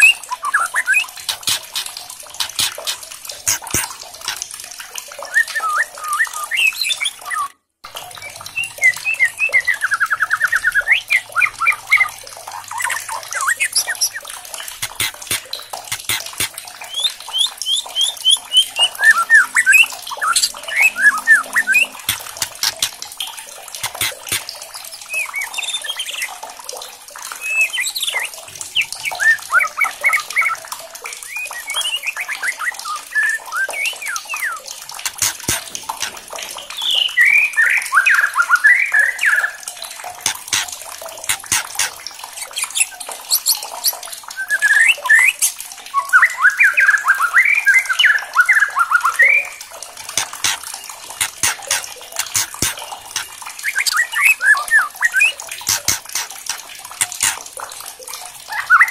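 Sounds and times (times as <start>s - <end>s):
bird singing whistled phrases: 0.0s - 1.2s, 5.3s - 7.5s, 16.8s - 22.0s, 44.4s - 49.6s
sharp ticking bird clicks: 0.0s - 4.5s, 12.9s - 24.6s, 34.9s - 37.1s, 40.1s - 44.0s, 50.0s - 54.4s, 55.1s - 57.6s.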